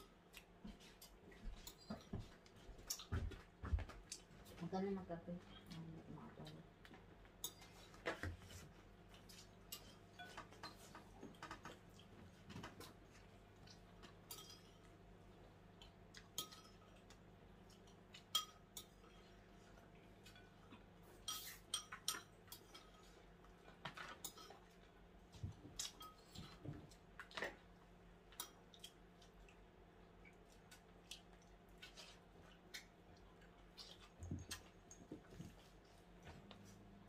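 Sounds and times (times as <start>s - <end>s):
utensils clinking on dishes: 7.4s - 8.6s, 9.3s - 11.6s, 14.0s - 14.9s, 16.3s - 17.1s, 17.8s - 19.5s, 20.2s - 24.8s, 25.8s - 26.7s.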